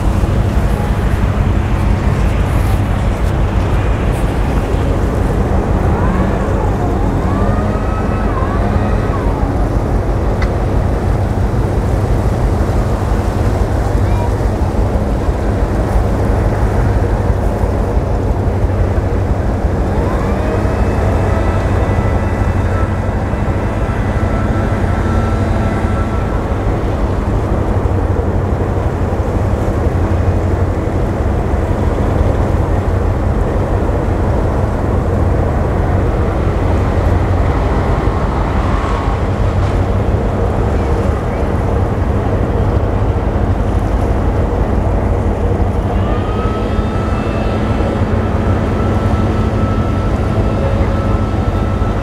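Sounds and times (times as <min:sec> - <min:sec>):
diesel engine rumble: 0:00.0 - 0:52.0
faint high whine: 0:45.2 - 0:52.0.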